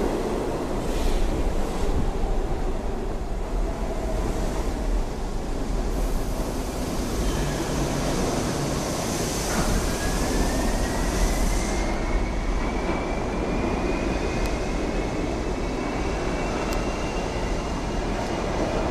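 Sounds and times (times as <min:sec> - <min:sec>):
subway train wheels rumbling: 0:00.0 - 0:18.9
loud hiss of passing cars: 0:05.8 - 0:12.3.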